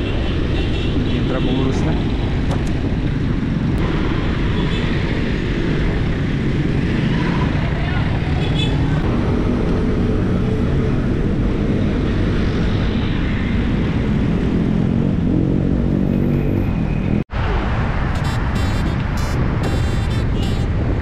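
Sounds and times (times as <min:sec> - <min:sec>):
road traffic: 0:00.0 - 0:21.0
wind rushing over microphone: 0:00.0 - 0:21.0
bus engine rumble passing: 0:17.3 - 0:21.0.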